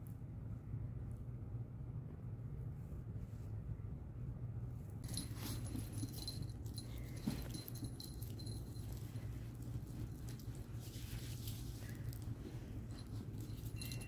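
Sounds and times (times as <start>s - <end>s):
dog paws clicking and scuffing: 5.0s - 14.0s
light metallic jingling: 5.0s - 14.0s.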